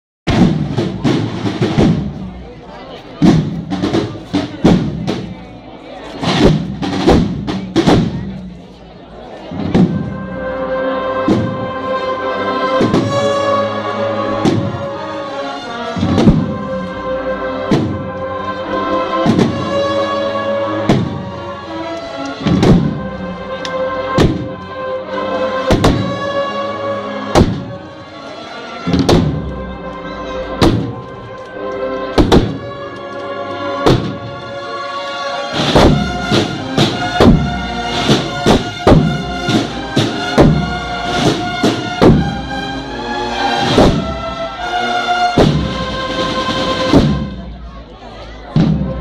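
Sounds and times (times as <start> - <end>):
drum strokes: 0.3 - 5.6, 6.2 - 8.6, 9.5 - 11.9, 12.7 - 13.5, 14.3 - 15.0, 15.9 - 18.3, 19.0 - 19.9, 20.8 - 21.4, 22.2 - 24.6, 25.6 - 26.3, 27.3 - 27.8, 28.8 - 29.8, 30.5 - 31.4, 32.1 - 32.8, 33.8 - 34.3, 35.5 - 47.8, 48.5 - 49.0
wind instruments melody: 0.3 - 49.0.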